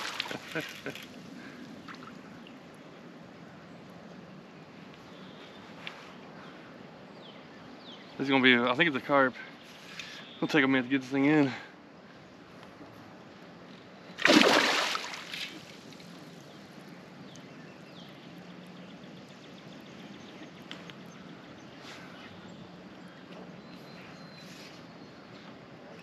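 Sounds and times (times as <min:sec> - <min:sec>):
fish splashing at surface: 0:14.2 - 0:15.7.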